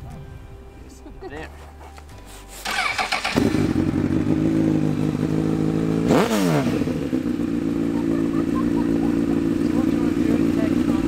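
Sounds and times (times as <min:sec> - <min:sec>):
motorcycle electric starter cranking: 0:02.6 - 0:04.3
motorcycle engine idling and revving: 0:02.6 - 0:11.0.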